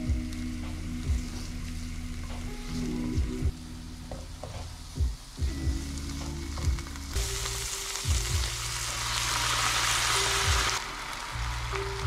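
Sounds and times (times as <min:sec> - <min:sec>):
loud hissing sizzle: 0:00.0 - 0:12.0
cheese sizzling in a frying pan: 0:05.3 - 0:12.0.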